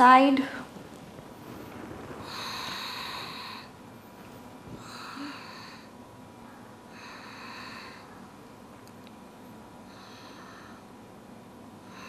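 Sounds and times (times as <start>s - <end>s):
woman breathing: 0.4s - 6.1s, 6.9s - 8.3s, 9.8s - 11.0s.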